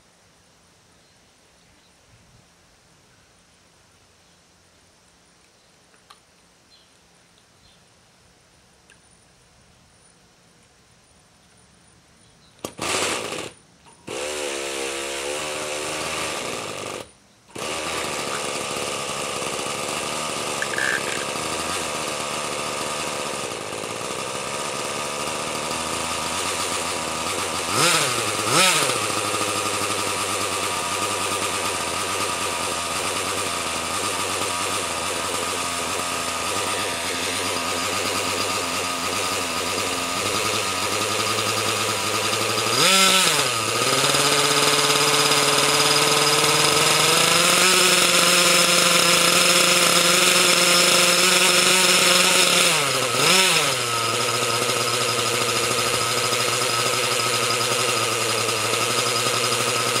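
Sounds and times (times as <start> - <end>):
model helicopter engine running: 17.6 - 60.0.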